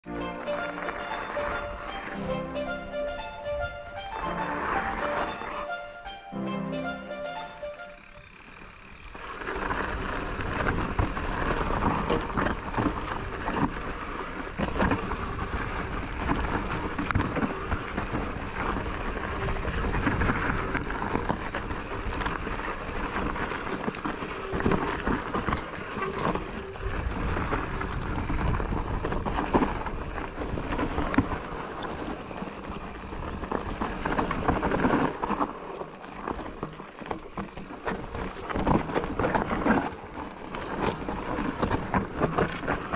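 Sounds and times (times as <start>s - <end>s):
bike knocks and rattles: 8.3s - 42.9s
wind rumble on microphone: 9.5s - 35.4s.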